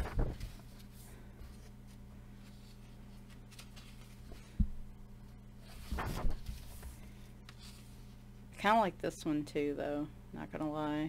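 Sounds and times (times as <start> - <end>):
paper page rustling: 0.0 - 4.6, 5.6 - 8.2.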